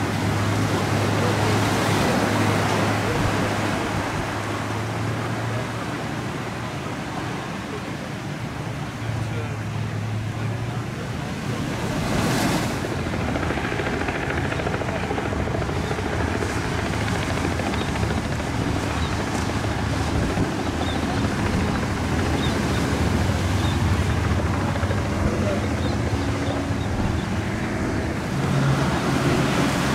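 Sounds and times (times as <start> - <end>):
outboard engines droning: 0.0 - 29.9
wind on microphone: 11.9 - 29.9.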